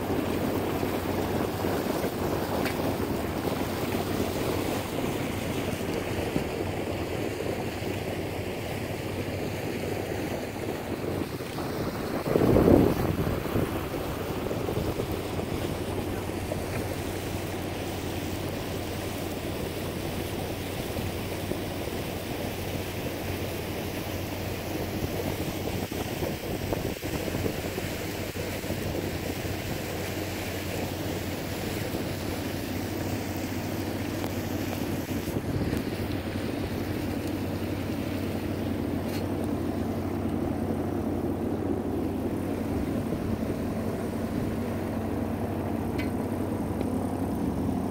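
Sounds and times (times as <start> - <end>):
water rushing along hull: 0.0 - 47.9
wind noise: 0.0 - 47.9
diesel engine droning: 30.3 - 47.9.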